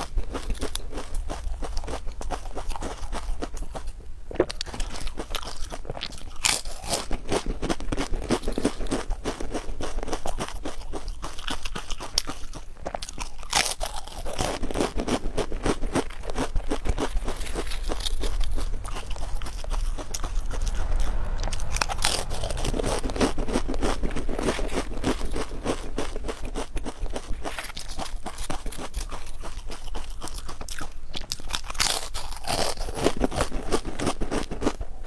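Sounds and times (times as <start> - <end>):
crisps being crunched: 0.3 - 21.3.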